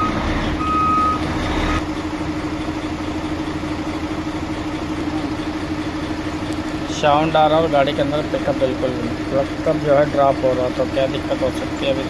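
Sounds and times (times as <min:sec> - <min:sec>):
electronic beep: 0:00.0 - 0:01.8
truck engine idling: 0:00.0 - 0:12.0.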